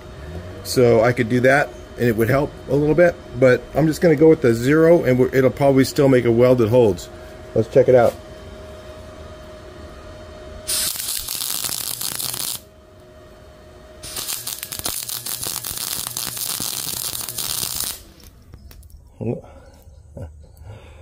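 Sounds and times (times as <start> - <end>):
steady hum: 0.0 - 21.0
welder arc crackling: 10.6 - 12.7, 14.0 - 18.9.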